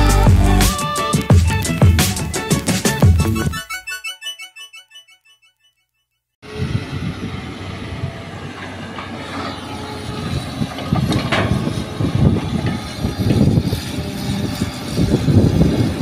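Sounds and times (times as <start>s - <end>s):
excavator diesel engine digging: 6.5s - 16.0s
dump trucks idling: 7.2s - 14.9s.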